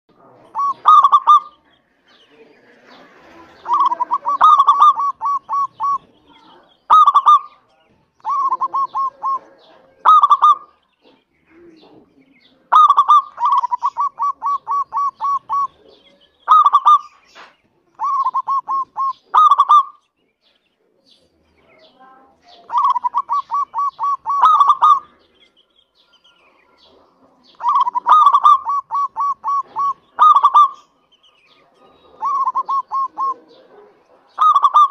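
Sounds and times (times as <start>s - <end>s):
dove cooing: 0.2s - 1.6s, 3.3s - 7.6s, 8.2s - 17.2s, 18.0s - 20.0s, 22.5s - 25.4s, 26.4s - 31.0s, 31.6s - 34.9s.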